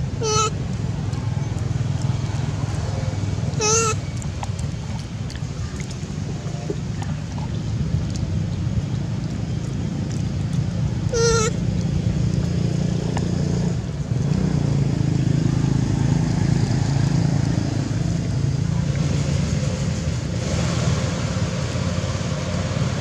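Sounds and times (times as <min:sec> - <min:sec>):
traffic engine hum: 0:00.0 - 0:23.0
baby monkey squealing: 0:00.2 - 0:00.6, 0:03.6 - 0:04.1, 0:11.1 - 0:11.6.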